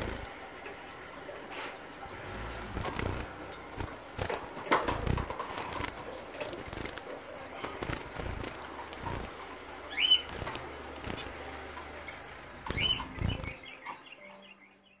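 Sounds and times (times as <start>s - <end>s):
wing flutters: 0.0s - 13.6s
finch calls: 1.5s - 15.0s.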